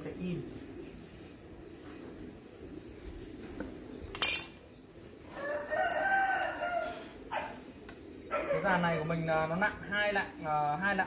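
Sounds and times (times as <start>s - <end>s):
rooster crowing: 5.3s - 7.3s.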